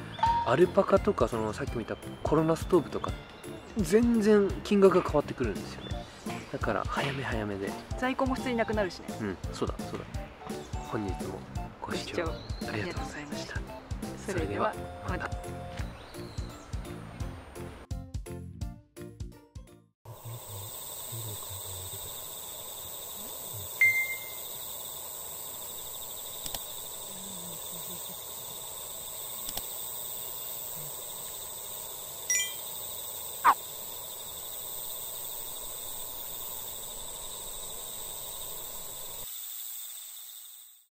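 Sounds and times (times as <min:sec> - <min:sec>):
high insect chorus: 0:00.0 - 0:16.6, 0:20.1 - 0:40.9
ringing chime-like notes: 0:23.8 - 0:24.4, 0:32.3 - 0:32.6.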